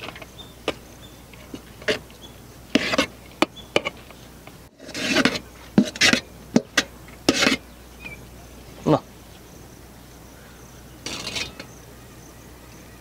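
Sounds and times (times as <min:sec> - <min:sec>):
utensils scraping a cooking pot: 0:01.4 - 0:02.1, 0:02.7 - 0:03.2, 0:04.8 - 0:07.6, 0:11.0 - 0:11.8.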